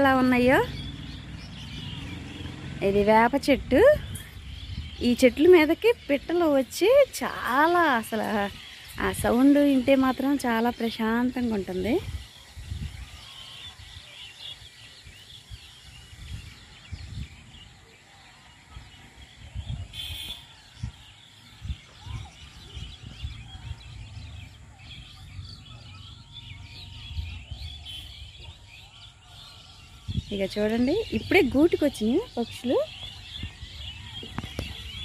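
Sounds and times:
birds chirping: 0:00.0 - 0:35.0
wind bumps on microphone: 0:03.5 - 0:06.1, 0:11.7 - 0:14.0, 0:15.0 - 0:17.8, 0:18.8 - 0:25.6, 0:30.0 - 0:35.0.

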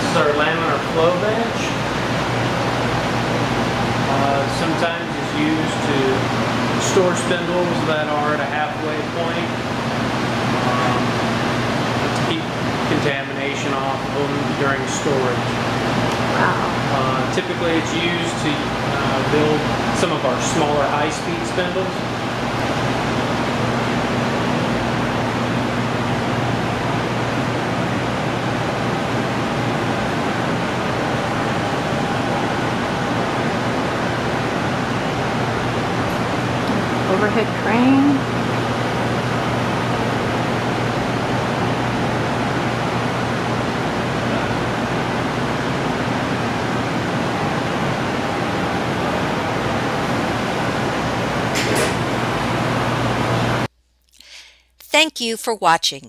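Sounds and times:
ventilation air rushing: 0:00.0 - 0:54.7
low steady hum: 0:53.6 - 0:56.0.

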